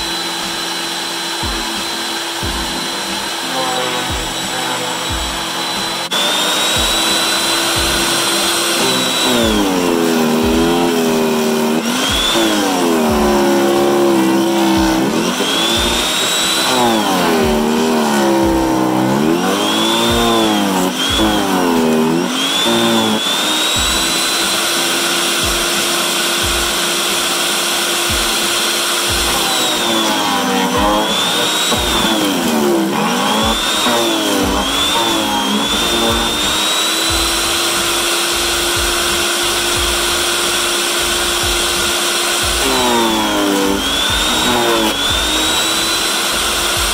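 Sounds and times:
chipper shredder grinding branches: 0:00.0 - 0:46.9.

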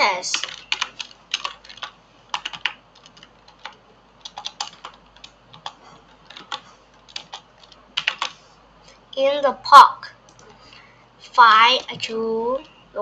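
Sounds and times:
typing on computer keyboard: 0:00.3 - 0:08.4.

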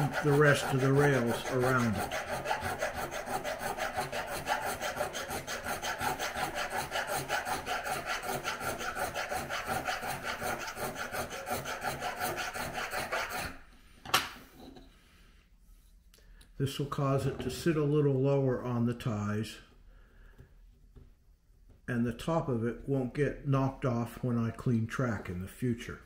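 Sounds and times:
hand file rasping on metal: 0:00.0 - 0:13.6.

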